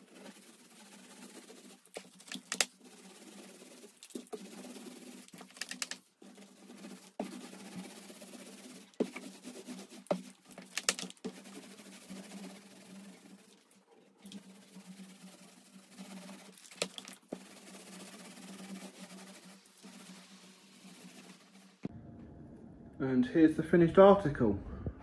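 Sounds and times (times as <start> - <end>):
paint roller rolling rasp: 0.0 - 21.9.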